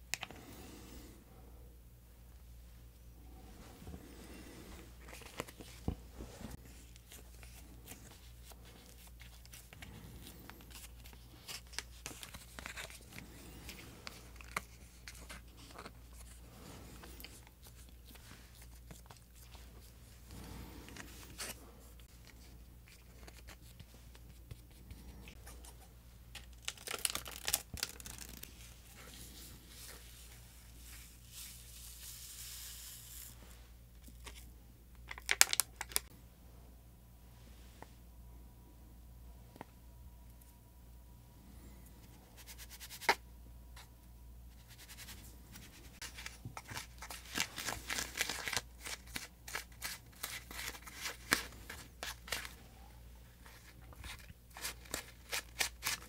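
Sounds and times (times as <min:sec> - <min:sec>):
plastic sachets crinkling: 0:06.9 - 0:16.4, 0:26.3 - 0:29.2, 0:35.0 - 0:36.1, 0:44.7 - 0:52.6, 0:53.4 - 0:56.0
plastic tearing: 0:26.4 - 0:28.5, 0:35.1 - 0:36.1.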